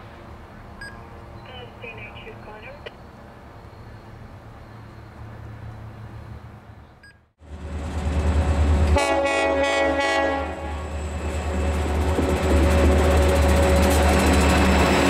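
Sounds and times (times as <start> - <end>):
heavy train engine rumble: 0.0 - 15.0
locomotive horn blasts: 9.0 - 10.9.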